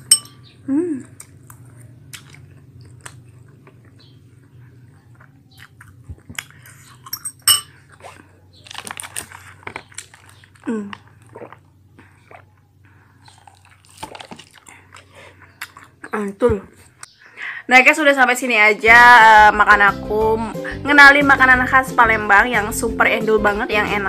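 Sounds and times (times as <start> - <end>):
fork clinking on glass bowl: 0.0 - 0.5, 7.1 - 7.8
chewing and biting: 0.0 - 17.1
low steady hum: 0.0 - 17.1.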